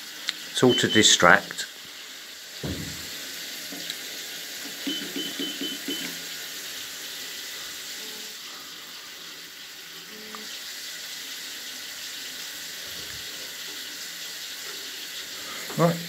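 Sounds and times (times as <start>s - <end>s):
shower water spray hissing: 0.0s - 16.0s
short high beeps: 0.7s - 1.2s, 4.8s - 6.2s.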